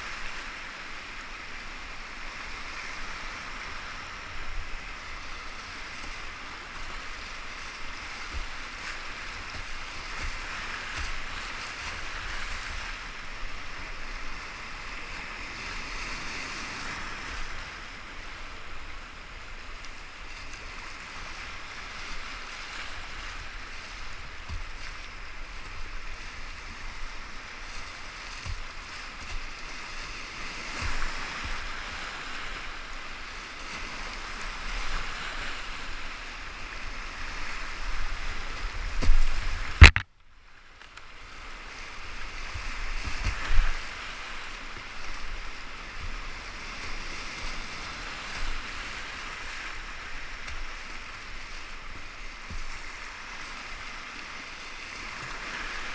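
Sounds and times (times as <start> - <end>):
whitewater rapids rushing: 0.0 - 15.8.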